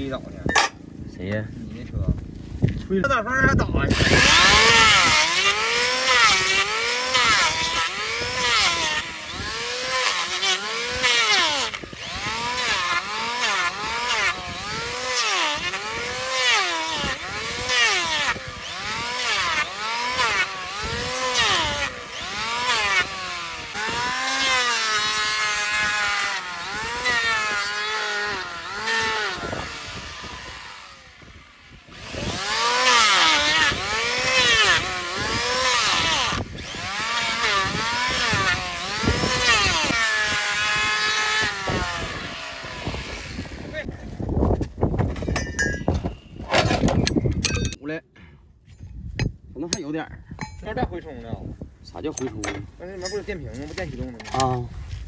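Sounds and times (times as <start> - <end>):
hoof-trimming machine whining: 3.8 - 43.8.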